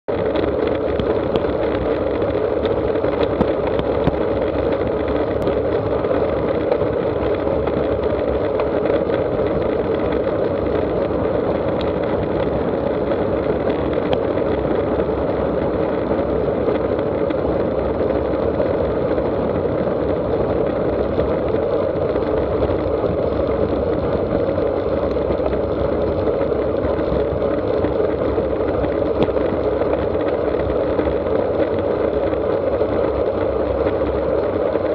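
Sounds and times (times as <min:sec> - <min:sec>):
bicycle tyre noise: 0:00.1 - 0:34.9
rushing wind: 0:00.1 - 0:34.9.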